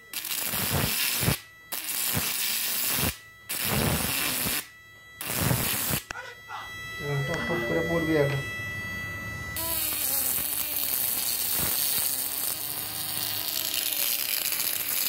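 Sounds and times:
electric arc crackling hiss: 0:00.0 - 0:06.1, 0:09.6 - 0:15.0
faint high whine: 0:00.0 - 0:15.0.

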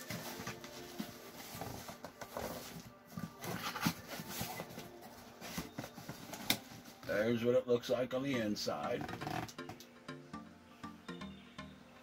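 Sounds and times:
cardboard rustling and scraping: 0:00.0 - 0:07.0.

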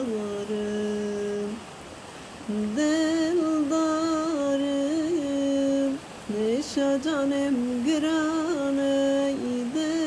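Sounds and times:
woman singing long notes: 0:02.4 - 0:10.0.

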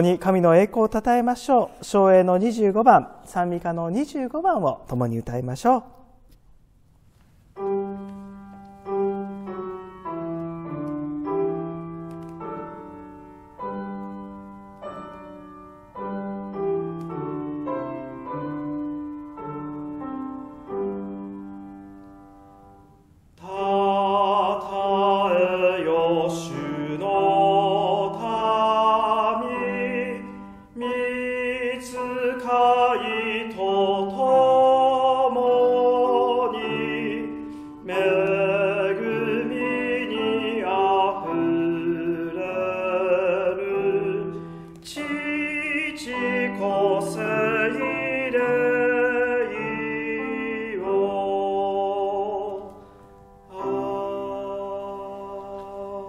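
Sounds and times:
piano playing hymn: 0:07.4 - 0:56.0
man singing hymn: 0:23.4 - 0:52.9, 0:53.5 - 0:56.0.

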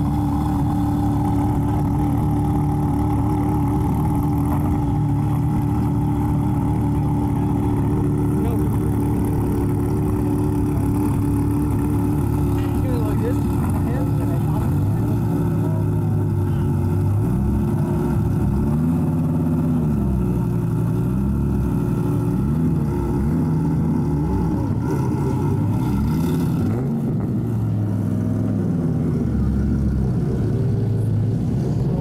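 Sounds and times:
car engine rising and falling: 0:00.0 - 0:32.0.

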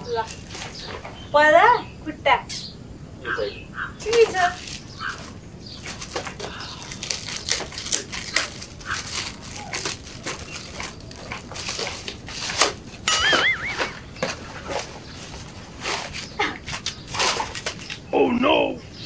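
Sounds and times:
wrapping paper crinkling and tearing: 0:00.0 - 0:01.0, 0:04.0 - 0:18.0
box being handled: 0:04.1 - 0:18.0.

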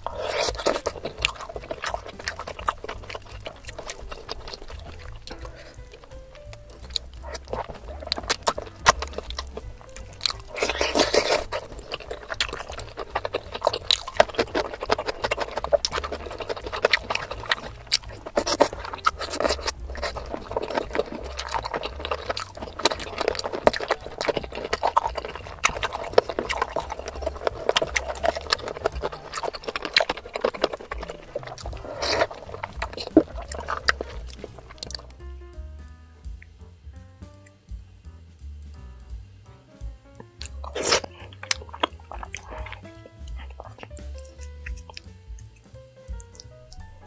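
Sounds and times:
sucking on a bone: 0:00.0 - 0:35.3, 0:40.2 - 0:47.0
wet chewing: 0:00.0 - 0:35.5, 0:40.0 - 0:47.0
lip smacks: 0:00.0 - 0:37.7, 0:39.8 - 0:47.0.

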